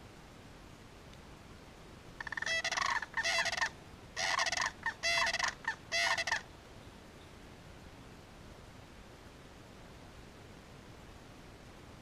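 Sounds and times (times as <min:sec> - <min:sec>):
cranes calling: 0:02.2 - 0:06.5.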